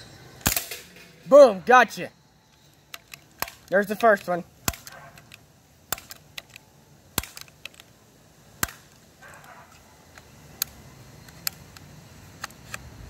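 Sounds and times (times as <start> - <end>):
bb gun clicks and snaps: 2.9 - 8.0, 8.6 - 12.9.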